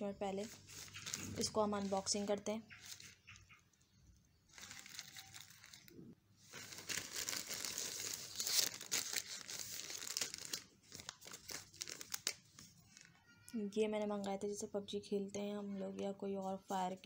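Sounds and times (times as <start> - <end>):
plastic bag crinkling and tearing: 0.4 - 3.2, 4.5 - 13.2.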